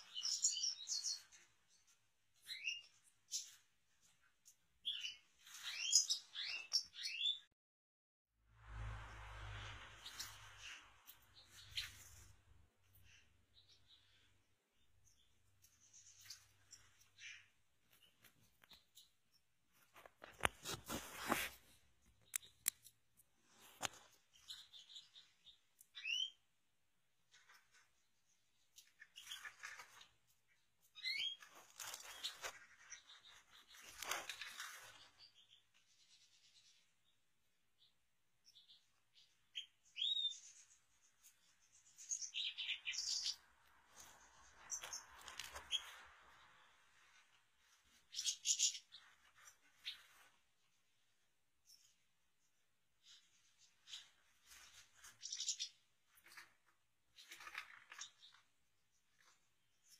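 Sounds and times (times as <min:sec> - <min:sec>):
bird chirping and twittering: 0:00.0 - 0:07.5, 0:09.6 - 0:19.4, 0:23.6 - 0:26.5, 0:28.2 - 0:37.2, 0:37.8 - 0:46.8, 0:47.8 - 0:50.3, 0:51.6 - 0:56.4.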